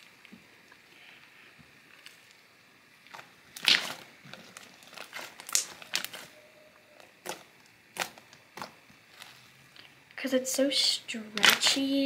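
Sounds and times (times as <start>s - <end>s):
slime popping and crackling: 3.0s - 6.4s, 7.0s - 9.5s, 11.3s - 12.0s.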